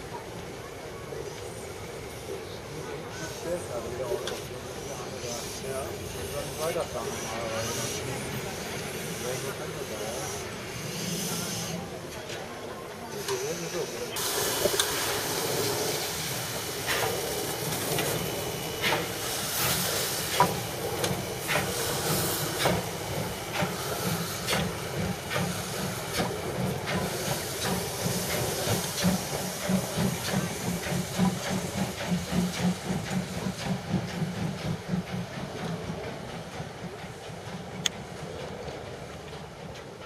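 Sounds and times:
steam hiss: 0.0 - 40.0
steam locomotive exhaust chuffs: 0.2 - 40.0.

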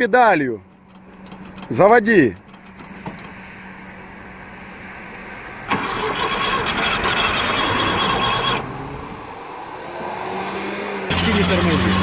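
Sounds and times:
starter motor cranking engine: 0.8 - 3.3, 5.7 - 8.6.

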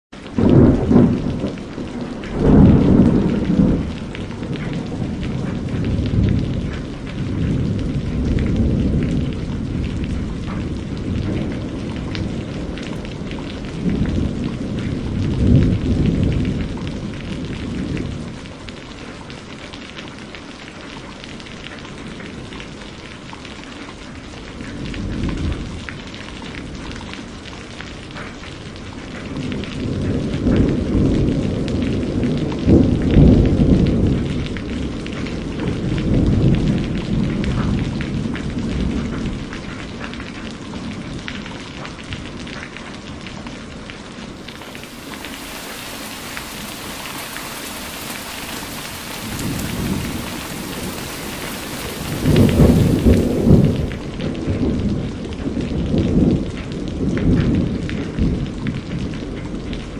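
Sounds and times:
heavy rain falling: 0.2 - 59.9
thunder rumbling: 0.3 - 18.1, 44.4 - 55.1.

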